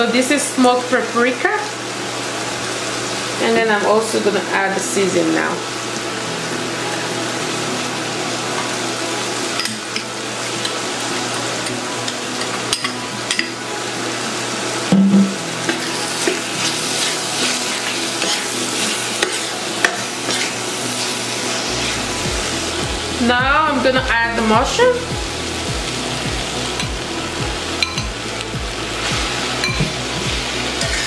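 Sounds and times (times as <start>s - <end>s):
vegetables sizzling in a frying pan: 0.0s - 31.0s
metal spoon scraping a pan: 15.6s - 22.1s, 29.1s - 31.0s.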